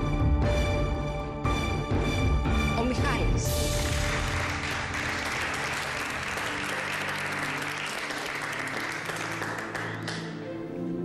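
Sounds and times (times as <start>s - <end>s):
people applauding: 3.7s - 10.5s.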